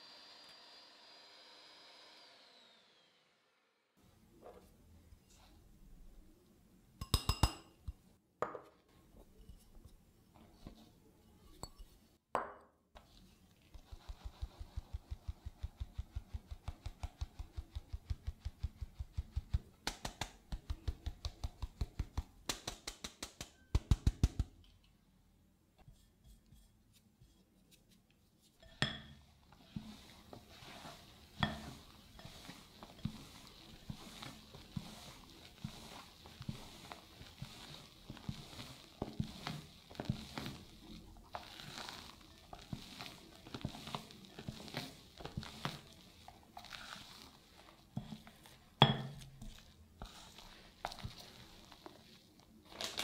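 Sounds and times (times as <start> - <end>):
sieve tapping over glass bowl: 7.0 - 8.6, 48.8 - 49.4
spatula scraping glass bowl: 28.6 - 52.1.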